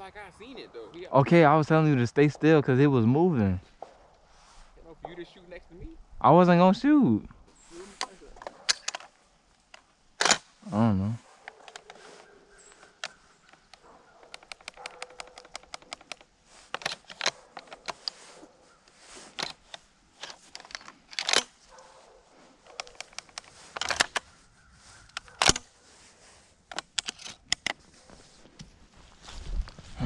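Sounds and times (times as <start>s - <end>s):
camera and gun rattling: 8.0s - 10.5s, 11.4s - 18.6s, 19.2s - 22.0s, 22.6s - 25.8s, 26.7s - 28.7s
footsteps in dry grass: 11.2s - 27.0s, 27.7s - 30.0s.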